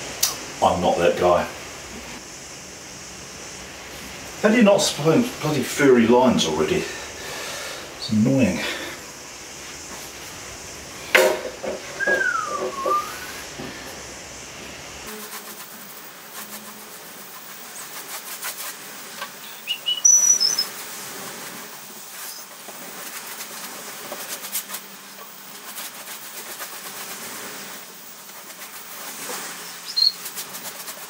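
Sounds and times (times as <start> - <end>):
paintbrush swishing on canvas: 15.1 - 31.0
high-pitched squeaks: 19.4 - 20.7, 29.7 - 30.3.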